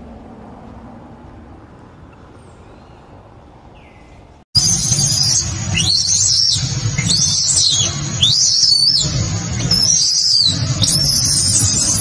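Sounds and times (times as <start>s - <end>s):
baby monkey screaming: 4.6s - 12.0s
low rumble: 4.6s - 12.0s.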